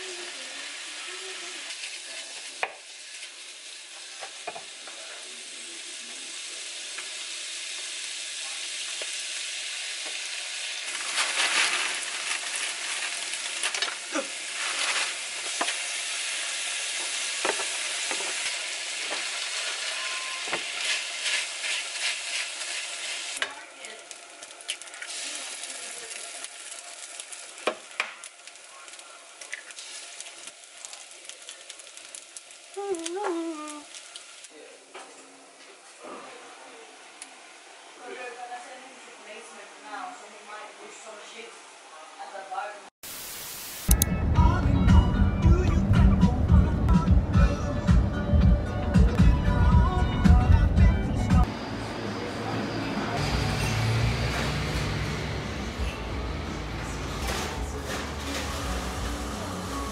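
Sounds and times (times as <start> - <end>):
food sizzling in a frying pan: 0.0 - 39.8, 43.0 - 44.0, 53.2 - 59.9.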